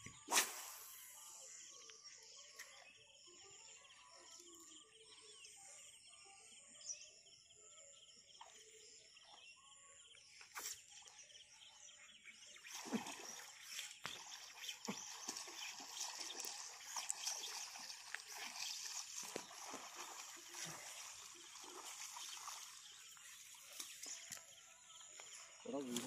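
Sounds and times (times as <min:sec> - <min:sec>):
distant bird calls: 0:08.3 - 0:26.0.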